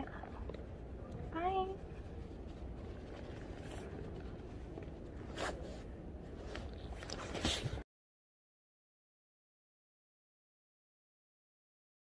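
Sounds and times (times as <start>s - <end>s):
low outdoor rumble: 0.0s - 7.8s
clothing and camera handling rustles: 2.8s - 7.8s.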